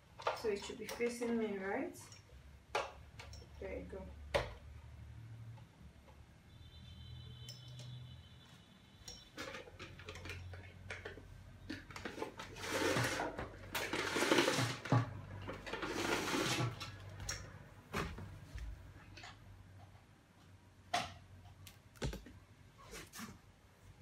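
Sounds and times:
rustling and scraping: 11.7 - 17.2, 22.1 - 23.5.

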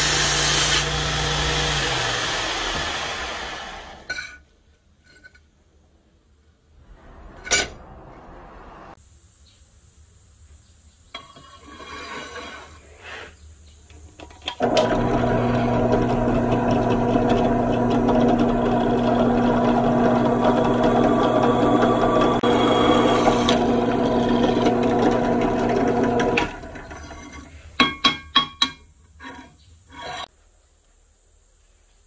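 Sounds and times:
drill press drilling steel: 0.0 - 4.1, 14.6 - 27.2.

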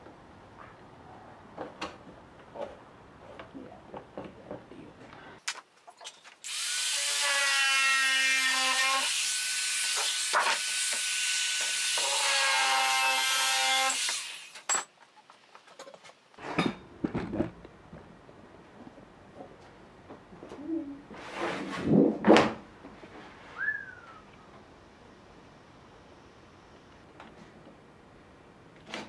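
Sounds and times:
power tool cutting metal sheet: 6.4 - 14.6
knocks and clatter: 14.7 - 18.1.

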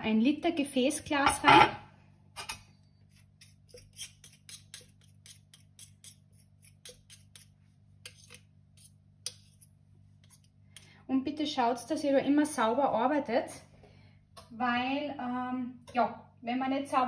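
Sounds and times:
fork scraping metal spoon: 2.4 - 10.9.

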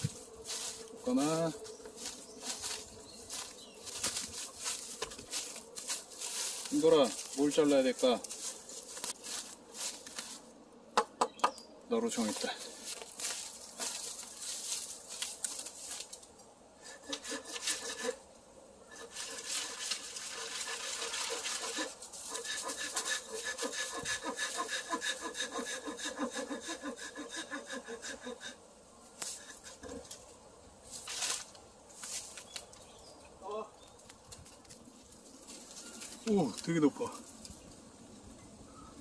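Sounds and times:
hand saw cutting bamboo: 16.8 - 18.2, 18.9 - 28.6.

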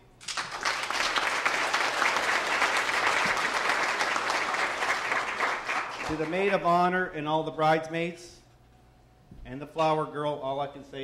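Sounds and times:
people applauding: 0.2 - 6.8.

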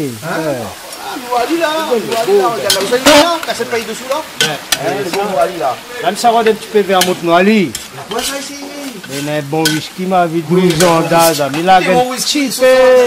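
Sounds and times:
oil sizzling: 0.0 - 13.0
people talking: 0.0 - 13.0
metal ladle scraping pan: 2.0 - 5.4, 6.4 - 12.0.

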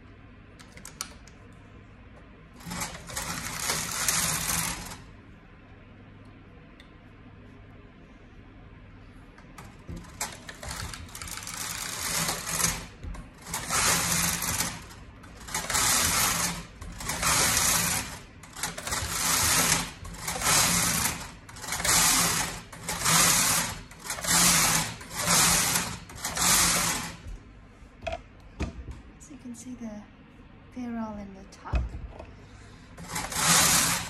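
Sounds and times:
knitting machine carriage sliding: 2.6 - 5.1, 9.6 - 27.4, 33.0 - 34.0.

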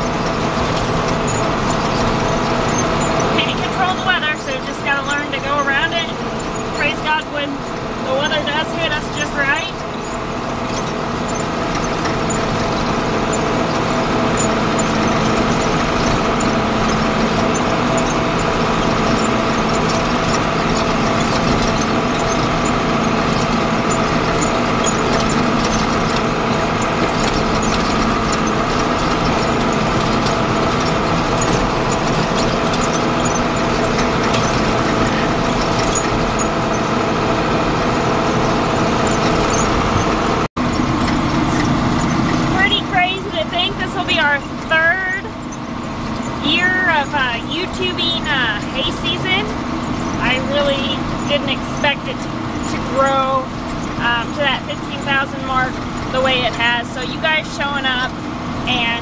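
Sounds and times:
light rattling clicks: 0.0 - 37.0
tractor diesel engine running: 0.0 - 59.0.

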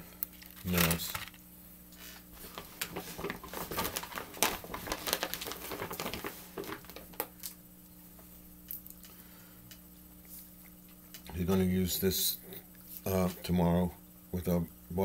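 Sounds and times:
shopping bag rustling: 0.5 - 1.4, 2.0 - 7.2.

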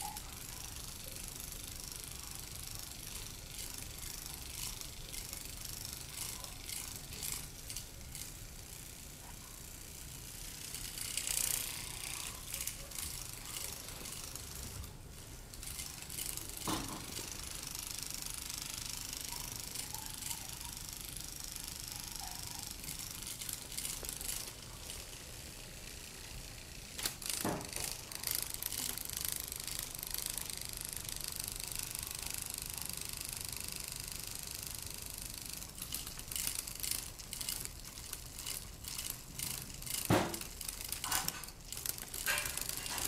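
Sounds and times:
toy mechanism whirring and clicking: 0.0 - 43.0
toy mechanism knocks: 15.6 - 25.2, 26.9 - 31.3, 35.8 - 43.0.

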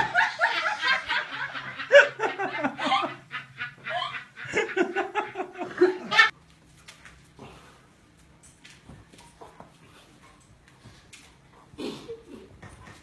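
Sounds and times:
hearty laughter: 0.0 - 6.3.

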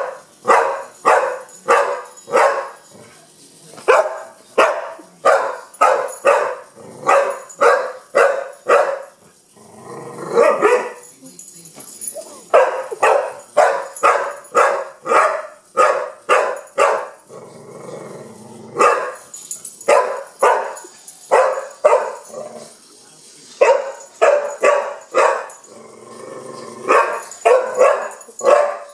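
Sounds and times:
dog barking: 0.0 - 2.8, 3.9 - 9.2, 10.3 - 11.0, 12.5 - 17.2, 18.8 - 22.3, 23.6 - 25.6, 26.9 - 28.9
dog growling: 6.7 - 7.4, 9.3 - 10.6, 17.2 - 19.0, 22.2 - 22.8, 25.4 - 27.4.

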